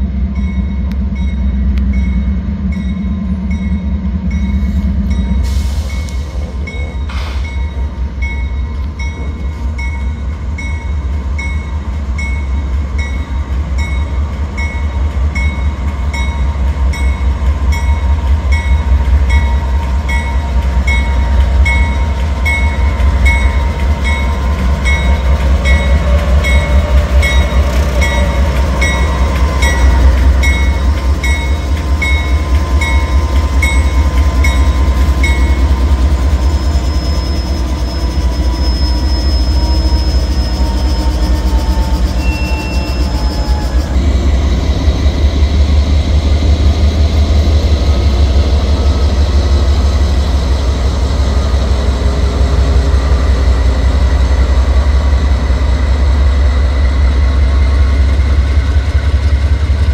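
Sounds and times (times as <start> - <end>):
locomotive bell ringing: 0.1 - 44.0.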